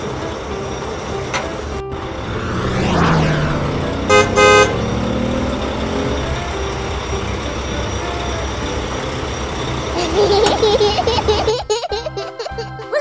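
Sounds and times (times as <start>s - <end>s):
cartoon truck engine running: 0.0s - 12.9s
brief whoosh: 2.0s - 5.4s
short horn toots: 4.1s - 4.8s.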